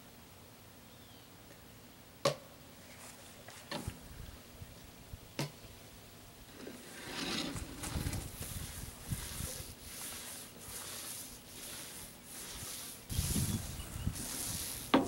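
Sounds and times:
soft rustling and scraping: 2.8 - 4.1, 6.5 - 15.0.

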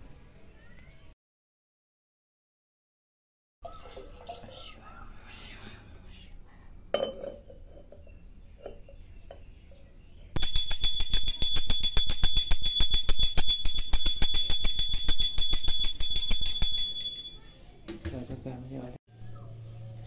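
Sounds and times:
hand bell ringing rapidly: 10.4 - 17.4.

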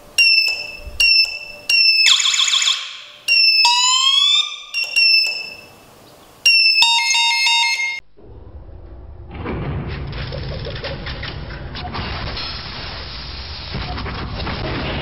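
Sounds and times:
electronic alarm beeps and siren: 0.2 - 5.8, 6.4 - 8.0.

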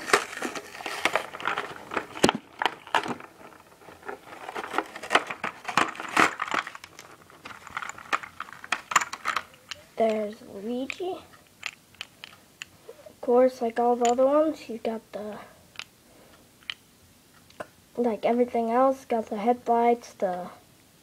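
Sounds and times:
plastic blister tray crinkling: 0.0 - 12.2.

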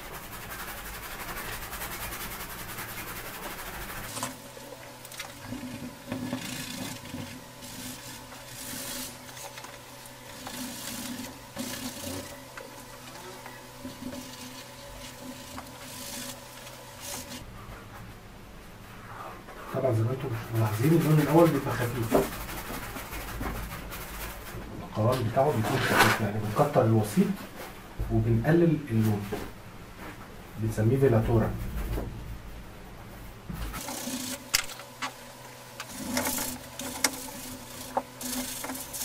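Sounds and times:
stiff paintbrush scrubbing paint: 0.0 - 4.5, 5.3 - 17.4, 20.4 - 24.5, 35.8 - 39.0
steady low hum: 0.0 - 39.0.

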